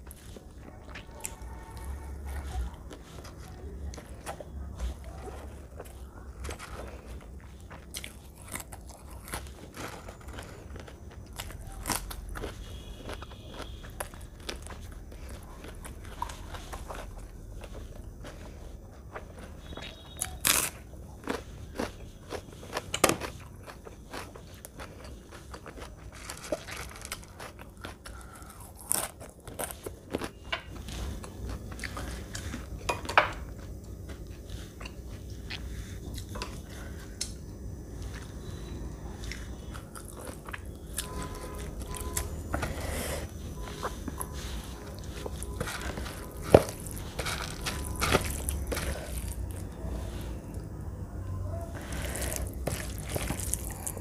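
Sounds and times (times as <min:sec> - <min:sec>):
crunchy chewing: 0:00.0 - 0:54.0
fingers squelching food: 0:51.7 - 0:54.0.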